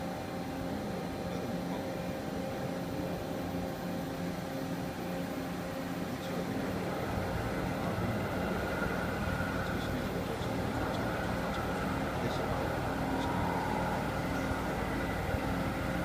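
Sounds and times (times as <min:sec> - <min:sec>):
high steady whine: 0:00.0 - 0:16.0
milling machine hum: 0:00.0 - 0:16.0.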